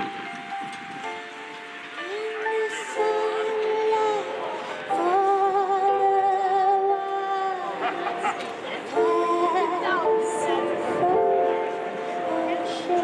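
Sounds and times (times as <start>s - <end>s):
keyboard accompaniment: 0.0s - 13.0s
woman singing through a pa: 2.0s - 7.8s, 8.6s - 13.0s.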